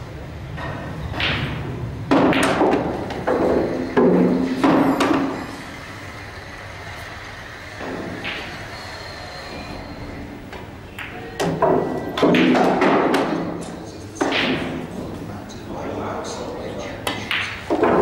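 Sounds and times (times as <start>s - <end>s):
pool balls clicking: 1.2s - 5.4s.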